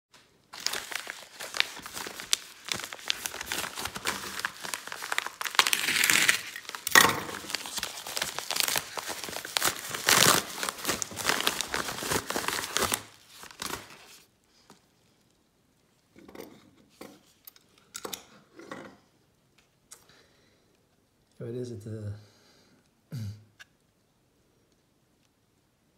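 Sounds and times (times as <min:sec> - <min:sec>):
paper mailer tearing and crinkling: 0:00.4 - 0:14.2
cardboard box rustling: 0:00.6 - 0:14.1.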